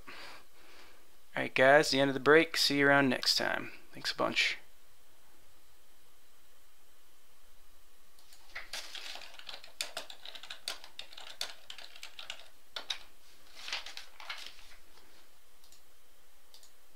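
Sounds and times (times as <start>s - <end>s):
typing on computer keyboard: 8.2s - 13.1s, 13.8s - 14.5s.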